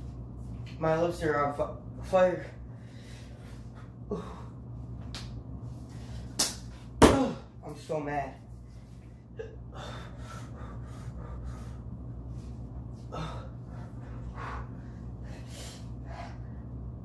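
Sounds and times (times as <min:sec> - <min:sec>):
man gasping and breathing hard: 0:09.5 - 0:11.9, 0:13.0 - 0:16.5.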